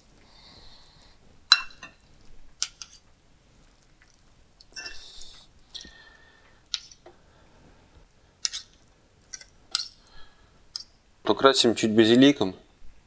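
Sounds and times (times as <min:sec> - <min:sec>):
cutlery clinking on ceramic bowl: 0:01.5 - 0:02.0.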